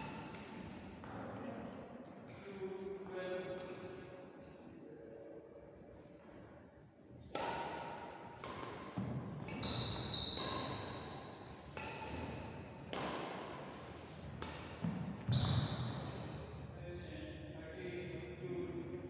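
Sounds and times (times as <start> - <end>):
rackets striking shuttlecock: 7.3 - 15.3.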